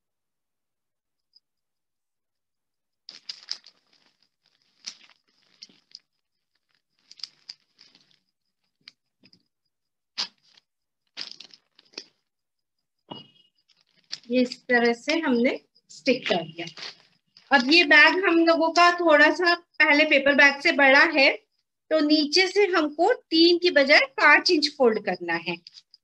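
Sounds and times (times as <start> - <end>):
paper rustling and crinkling: 3.1 - 8.9, 10.2 - 12.2, 13.7 - 14.5, 16.2 - 17.8.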